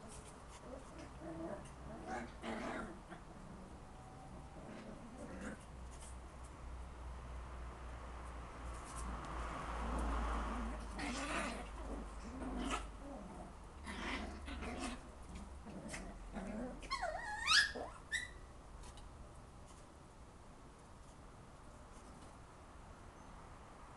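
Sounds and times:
puppies growling: 0.0s - 5.7s, 9.8s - 18.3s
puppy squealing: 16.7s - 18.5s.

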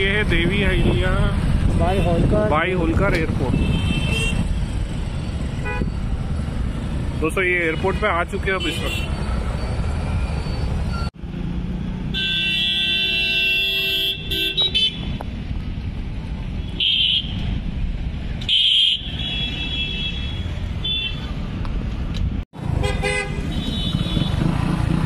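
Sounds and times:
road traffic rumble: 0.0s - 25.0s
vehicle horns honking: 3.5s - 4.5s, 5.6s - 5.9s, 7.6s - 9.3s, 12.1s - 15.2s, 16.6s - 17.4s, 18.4s - 21.3s, 22.7s - 24.5s.

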